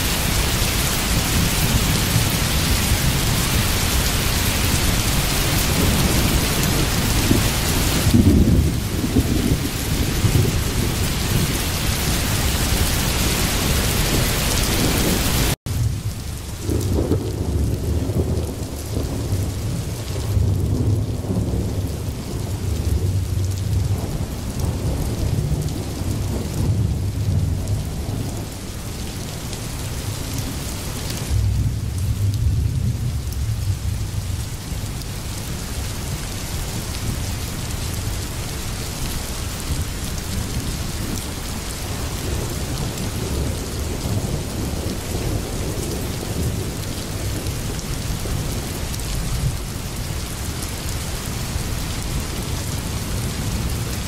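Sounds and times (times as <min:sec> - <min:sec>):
rolling thunder: 0:00.0 - 0:29.4, 0:30.0 - 0:38.3, 0:39.4 - 0:49.7
heavy rain hissing: 0:00.0 - 0:54.0.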